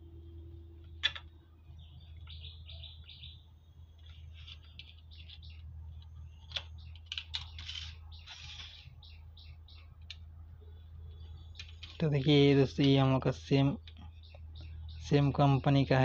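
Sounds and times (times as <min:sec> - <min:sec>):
low electrical hum: 0:00.0 - 0:16.0
small birds chirping: 0:00.2 - 0:16.0.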